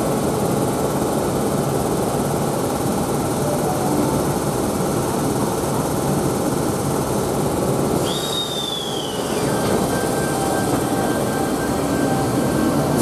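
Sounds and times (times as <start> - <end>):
electric train rumbling past: 0.0 - 13.0
high squeal sliding down: 8.0 - 13.0.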